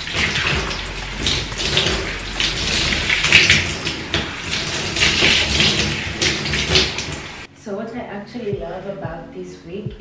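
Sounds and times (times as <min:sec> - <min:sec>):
bathtub tap running: 0:00.0 - 0:07.5.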